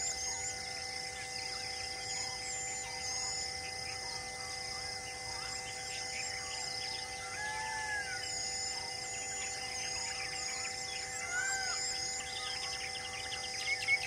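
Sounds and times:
birds chirping: 0.0 - 14.0
steady droning background: 0.0 - 14.0
whistled bird notes: 5.3 - 14.0.

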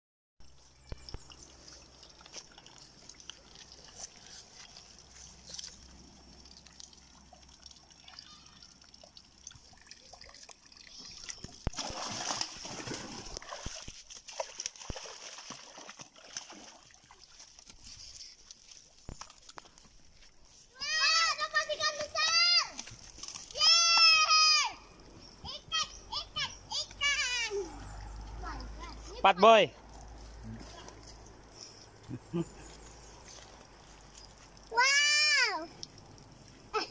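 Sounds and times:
water sloshing in muddy hole: 0.5 - 25.7, 26.5 - 36.9.

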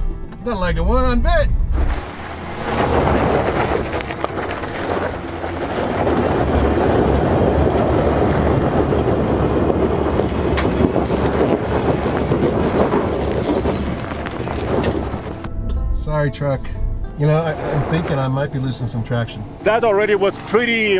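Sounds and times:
truck engine under heavy throttle: 1.6 - 15.5
tyre spinning spraying gravel: 1.9 - 15.5.

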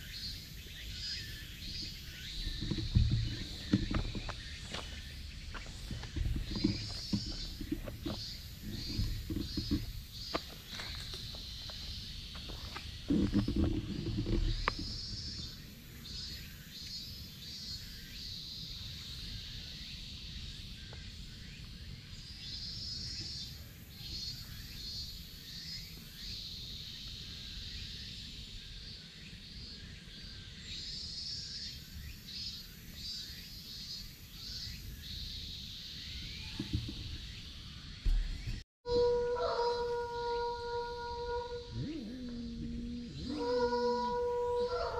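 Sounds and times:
high-pitched chirring animal calls: 38.9 - 44.9.

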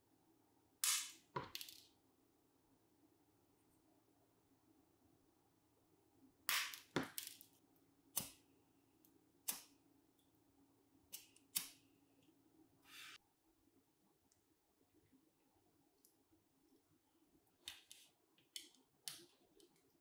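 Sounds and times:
short scraping hiss: 12.8 - 13.2.

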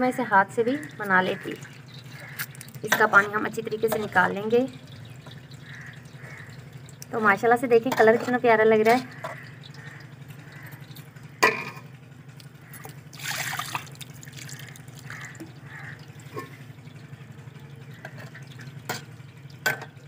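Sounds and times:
water sloshing and dripping: 0.3 - 20.0
water splashing: 0.8 - 11.2, 12.6 - 17.1.

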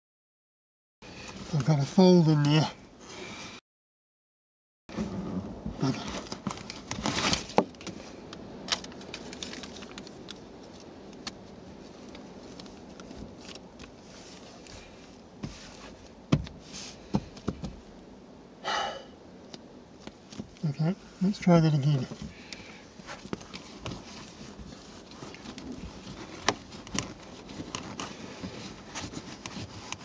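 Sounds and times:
fabric rustling and crinkling: 4.9 - 17.8, 20.0 - 30.0.

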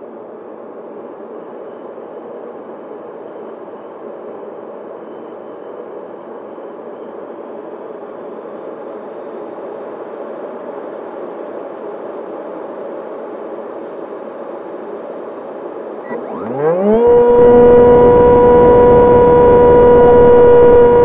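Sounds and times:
electric motor and propeller: 16.2 - 21.0.

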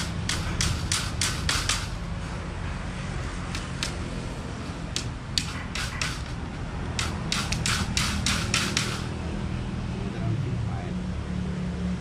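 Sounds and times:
snipping on mesh fish trap: 7.0 - 9.1.

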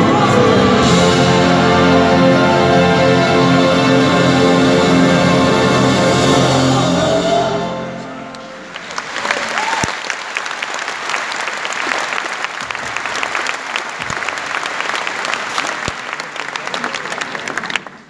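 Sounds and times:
orchestra holding a chord: 0.0 - 8.9
crowd applauding: 8.6 - 18.0.

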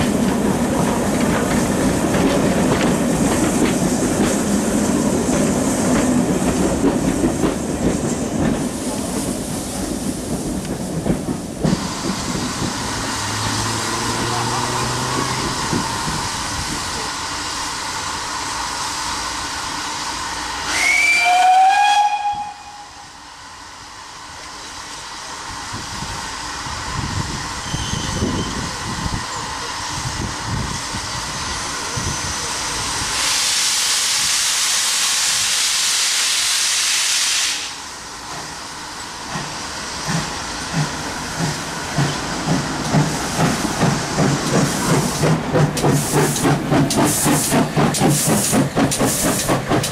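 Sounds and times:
steam locomotive exhaust beats: 0.0 - 23.4, 24.3 - 49.9
steam hissing: 0.0 - 49.9
steam whistle blast: 20.6 - 23.2.

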